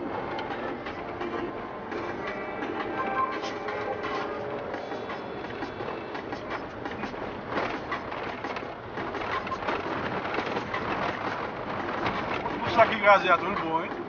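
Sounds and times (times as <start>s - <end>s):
car interior rattling and knocking: 0.0s - 14.0s.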